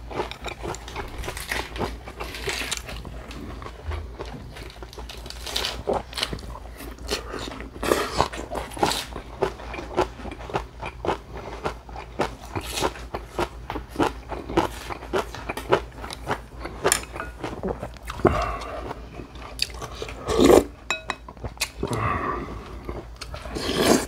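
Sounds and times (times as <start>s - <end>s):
person chewing crunchy food: 0.0s - 24.0s.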